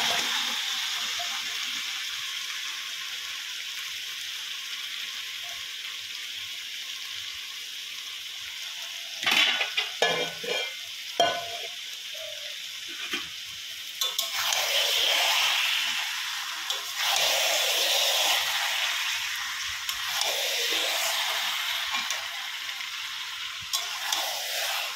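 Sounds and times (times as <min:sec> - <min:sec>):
meat sizzling in a pan: 0:00.0 - 0:24.9
spoon scraping and knocking a pan: 0:09.2 - 0:11.7, 0:14.0 - 0:14.8.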